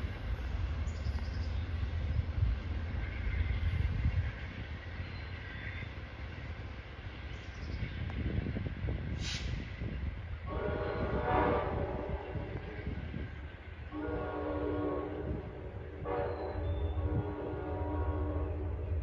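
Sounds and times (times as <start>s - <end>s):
train rumble: 0.0s - 19.0s
train air horn: 10.4s - 13.0s, 13.9s - 19.0s.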